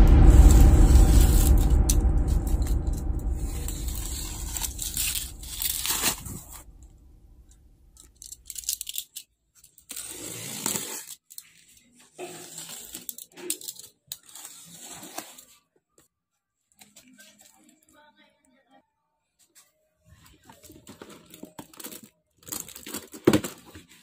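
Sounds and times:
bubble wrap crinkling and tearing: 0:03.7 - 0:06.3, 0:08.2 - 0:15.6, 0:20.4 - 0:24.0
box cutter slicing packing tape: 0:09.9 - 0:11.2.

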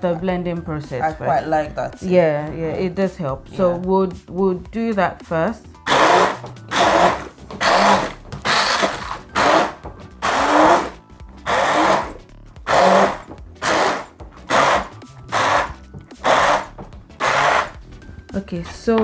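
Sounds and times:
stick blender bursts: 0:05.8 - 0:17.8.

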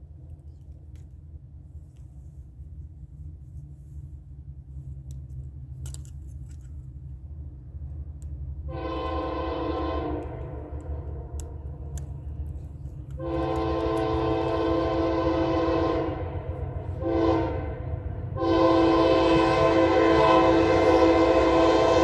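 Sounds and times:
diesel locomotive engine rumble: 0:00.0 - 0:22.0
train air horn: 0:08.7 - 0:11.3, 0:13.1 - 0:22.0.

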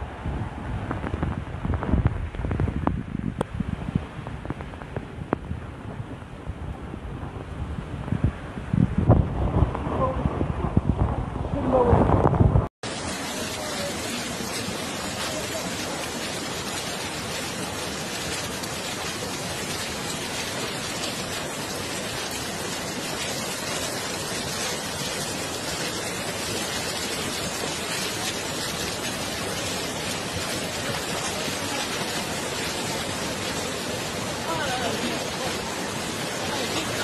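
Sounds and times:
heavy rain hissing: 0:12.8 - 0:37.0.

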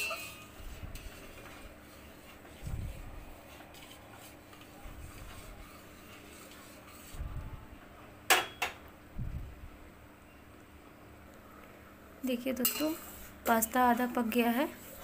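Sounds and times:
spatula clinking on steel pot: 0:12.6 - 0:13.0.

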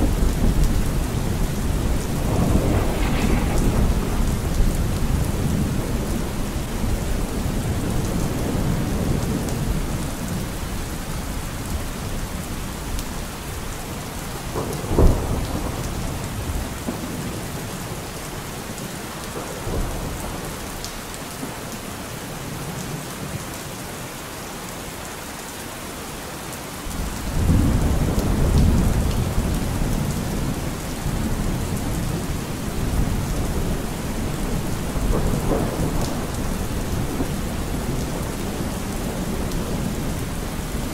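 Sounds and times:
thunder clap: 0:00.0 - 0:08.9, 0:14.4 - 0:17.4, 0:34.4 - 0:40.0
low thunder rumble: 0:00.0 - 0:10.4, 0:14.3 - 0:18.1, 0:26.9 - 0:40.9
steady rain: 0:00.0 - 0:40.9.

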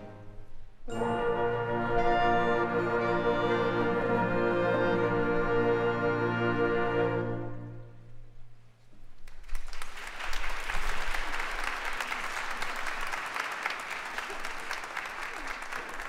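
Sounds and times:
audience applauding: 0:09.2 - 0:16.0.

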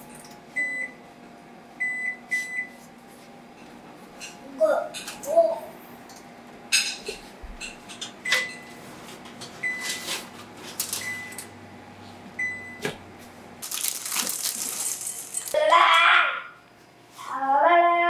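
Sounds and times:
baking sheets clanking: 0:13.6 - 0:15.6
chocolate pieces pouring into bowl: 0:13.6 - 0:15.6.

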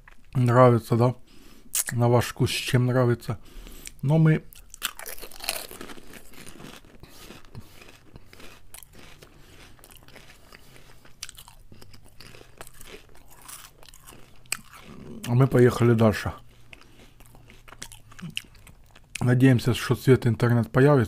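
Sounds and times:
potato chips crunching: 0:03.6 - 0:19.4.

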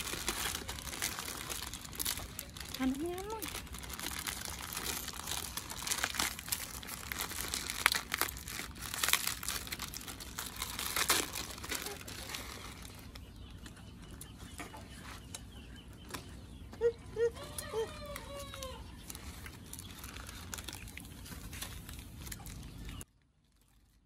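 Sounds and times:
sachets being torn open: 0:00.0 - 0:13.1, 0:18.1 - 0:23.0
plastic wrappers crinkling: 0:00.0 - 0:13.6, 0:18.0 - 0:24.0.

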